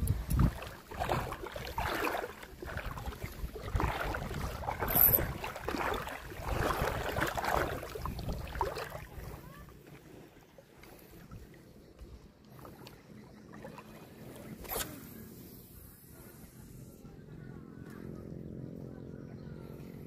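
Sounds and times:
wind on microphone: 0.0s - 9.5s
water washing at shoreline: 0.0s - 15.6s.

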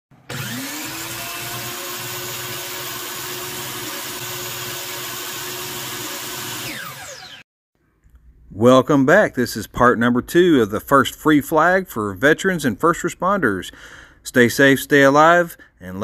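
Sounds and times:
miter saw motor running: 0.3s - 7.4s.

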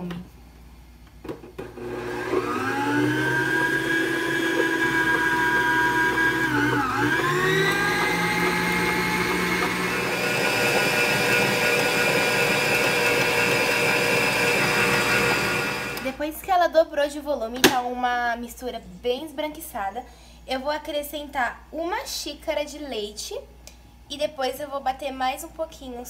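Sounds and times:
stand mixer motor whining: 1.6s - 16.1s.

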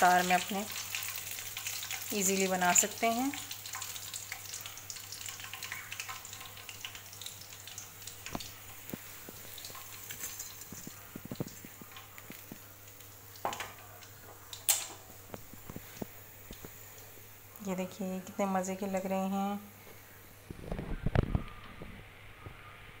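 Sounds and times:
food deep-frying in oil: 0.0s - 18.2s.

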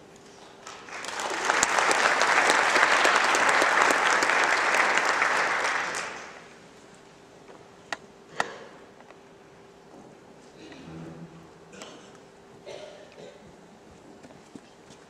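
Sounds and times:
audience applauding: 0.6s - 6.6s.

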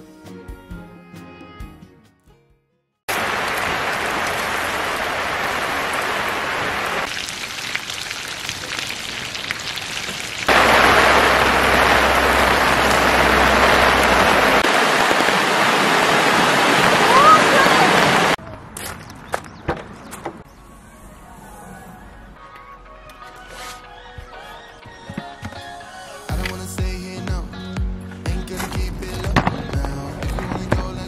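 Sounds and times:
rain on a tarp: 3.1s - 18.4s
stream rushing over rocks: 3.1s - 18.4s.

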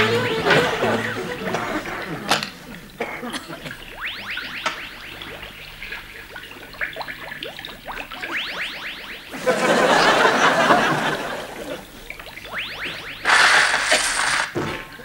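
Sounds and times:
short rising electronic whistles: 12.4s - 14.5s.

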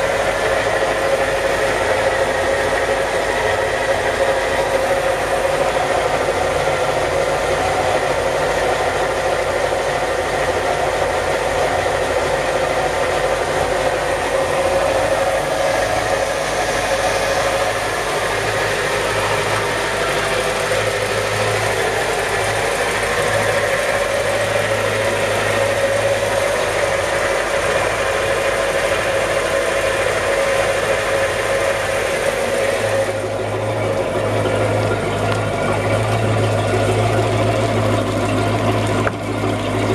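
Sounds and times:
boat engine idling: 0.0s - 39.9s.

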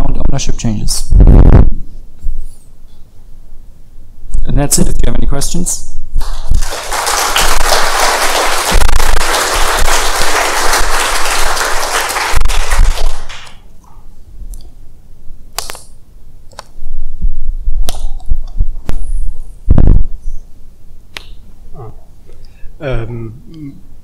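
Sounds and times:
audience applauding: 6.2s - 13.6s.

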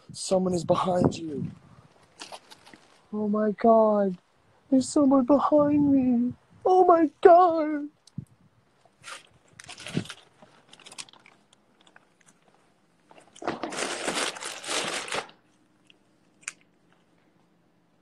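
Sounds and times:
rustling and crunching handling noise: 0.8s - 3.2s, 8.0s - 17.6s.

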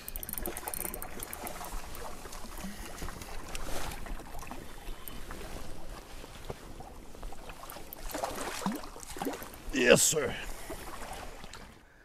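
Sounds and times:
wind: 0.0s - 12.0s
fish splashing at the surface: 7.7s - 9.7s.

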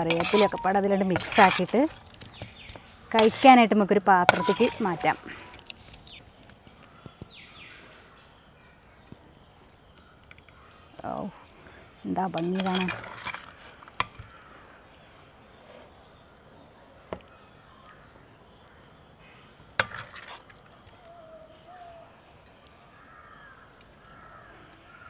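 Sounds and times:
faint bird calls: 20.9s - 22.2s.

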